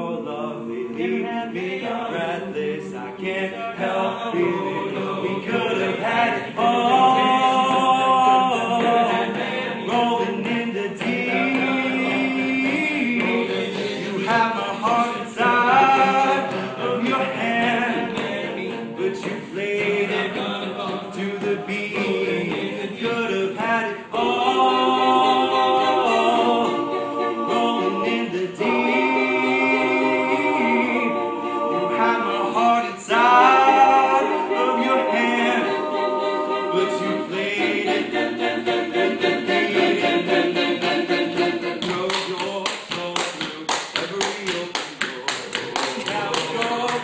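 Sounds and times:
male a cappella group singing: 0.0 - 47.0
hand claps: 8.6 - 23.2, 40.8 - 47.0.

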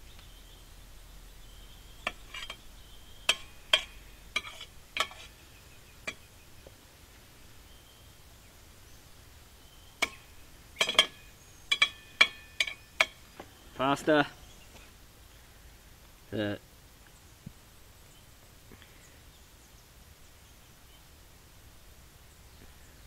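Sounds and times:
metal spoon clinking on saucepan: 2.0 - 5.4, 6.0 - 6.3, 10.0 - 13.2.

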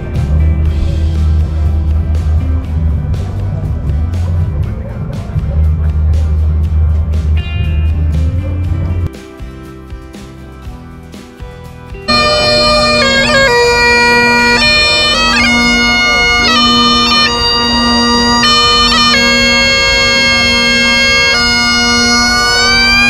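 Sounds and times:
bagpipes playing a tune: 0.0 - 4.6, 12.1 - 23.0.

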